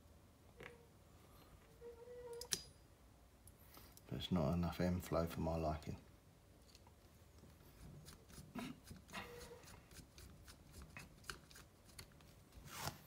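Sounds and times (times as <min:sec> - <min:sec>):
screwdriver clicking and scraping: 0:10.2 - 0:12.3.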